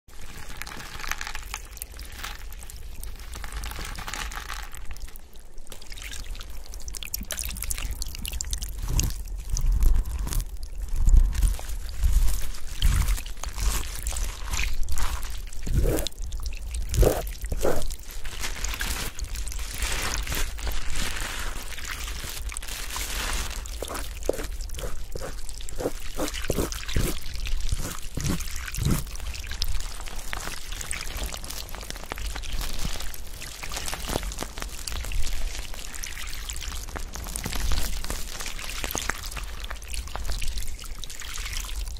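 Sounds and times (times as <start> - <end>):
water pouring and trickling: 0.1 - 41.9
water plops and drips: 4.0 - 20.8.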